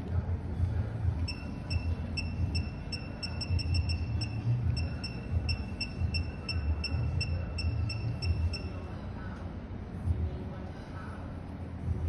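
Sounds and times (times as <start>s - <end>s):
short high electronic beeps: 1.3s - 8.8s.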